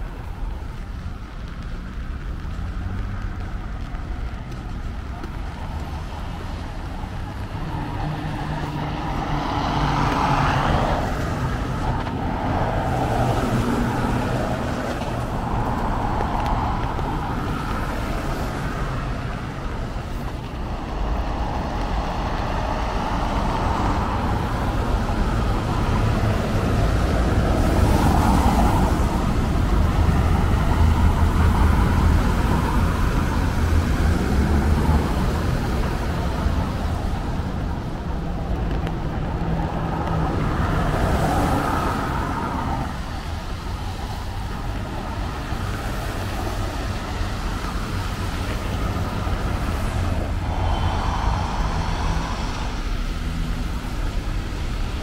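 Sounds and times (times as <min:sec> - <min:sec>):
traffic on wet street: 0:00.0 - 0:55.0.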